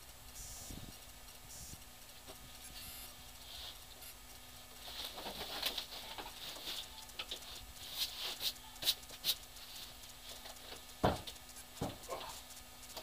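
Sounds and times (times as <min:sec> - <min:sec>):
dull thump: 0:11.0 - 0:12.0.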